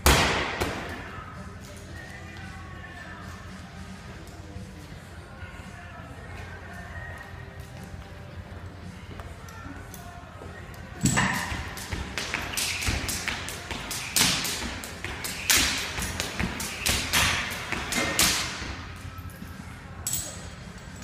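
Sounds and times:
jump rope slapping a rubber mat: 0:11.0 - 0:18.6
feet landing: 0:11.0 - 0:18.8
rope whipping through the air: 0:11.0 - 0:18.9.

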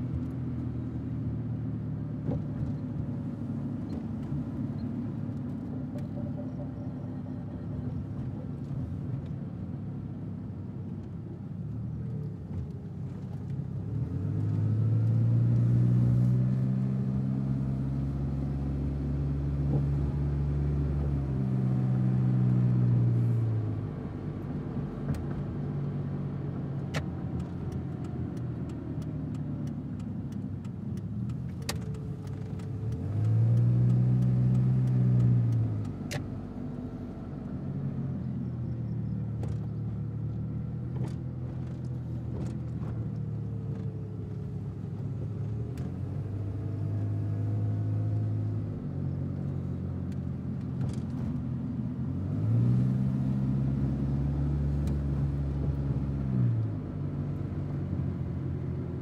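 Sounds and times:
road drone: 0:00.0 - 0:59.0
car engine accelerating: 0:12.3 - 0:59.0.

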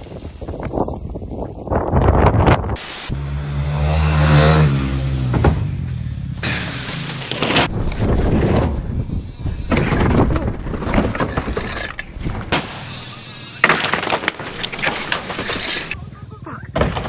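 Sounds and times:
wind rumbling on microphone: 0:00.0 - 0:02.8, 0:07.6 - 0:12.5
bike crash thuds and scrapes: 0:06.4 - 0:16.0, 0:16.8 - 0:17.0.

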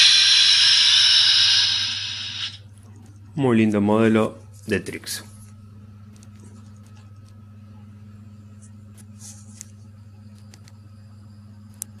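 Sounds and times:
model train hum: 0:00.0 - 0:02.6.

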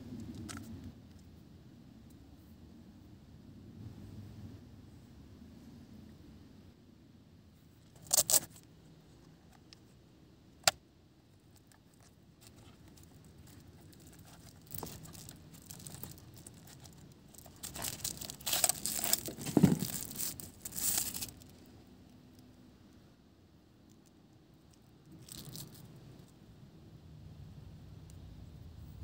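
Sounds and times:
scraping and rustling: 0:11.5 - 0:21.7.

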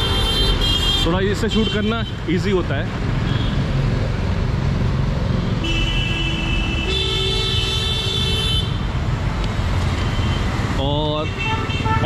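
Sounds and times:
vehicle horns: 0:00.0 - 0:02.2, 0:05.6 - 0:08.9, 0:10.0 - 0:12.0
road traffic rumbling: 0:00.0 - 0:12.0.

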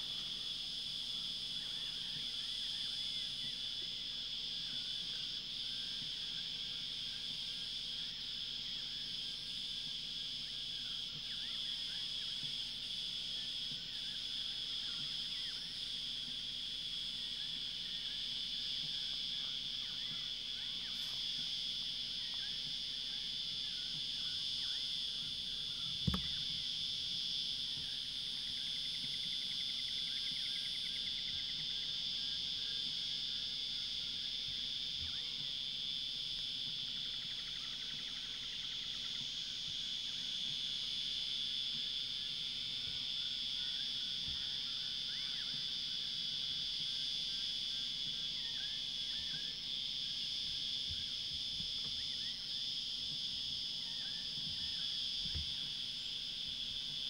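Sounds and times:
high-pitched insect chorus: 0:00.0 - 0:57.0
dull thump: 0:26.0 - 0:26.4.

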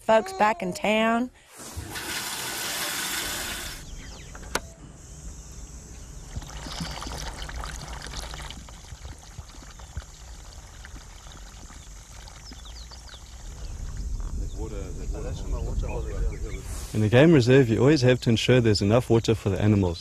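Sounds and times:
water pouring onto soil: 0:06.3 - 0:14.0.

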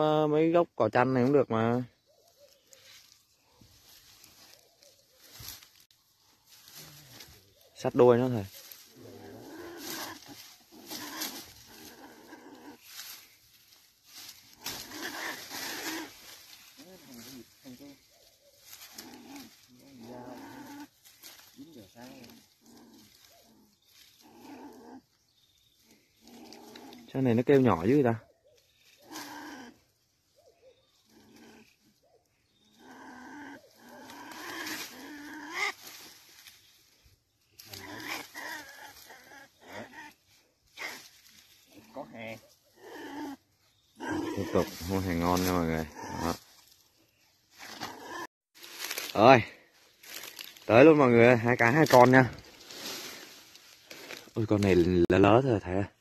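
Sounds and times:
dry grass rustling: 0:01.6 - 0:56.0
animal growling call: 0:08.4 - 0:13.3, 0:14.2 - 0:28.2, 0:28.8 - 0:36.4, 0:37.6 - 0:46.7, 0:47.5 - 0:48.3
small animal crying: 0:32.7 - 0:35.9, 0:44.0 - 0:44.8.

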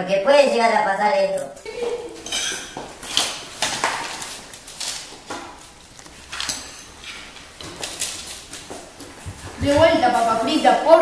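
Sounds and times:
metal spoon clinking on a plate: 0:02.2 - 0:02.8.

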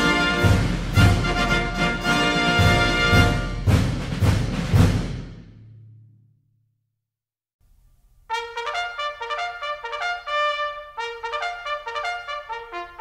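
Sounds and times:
trumpet melody: 0:00.0 - 0:03.8, 0:08.3 - 0:13.0.

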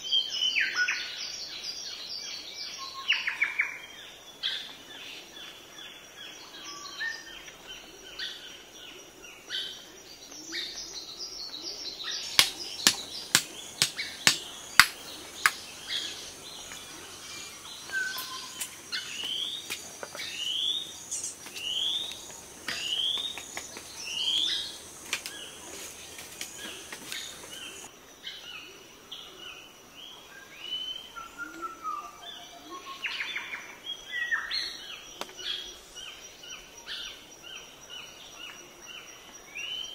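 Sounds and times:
birds chirping and calling: 0:09.3 - 0:27.9
sharp knocks: 0:12.3 - 0:15.6.

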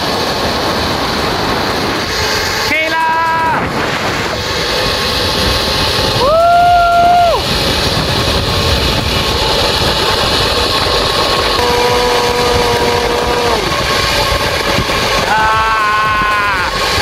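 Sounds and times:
wind over microphone: 0:00.0 - 0:17.0
zipline trolley running on cable: 0:00.0 - 0:17.0
person shouting: 0:15.3 - 0:16.8.

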